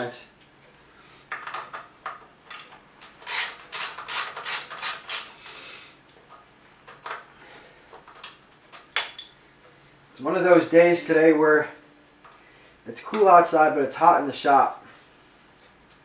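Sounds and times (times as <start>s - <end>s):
socket ratchet clicking: 3.2s - 5.6s.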